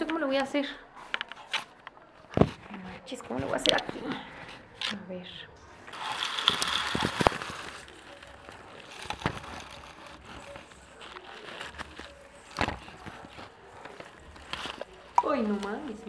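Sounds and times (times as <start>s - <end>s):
branches rustling: 5.8s - 16.0s.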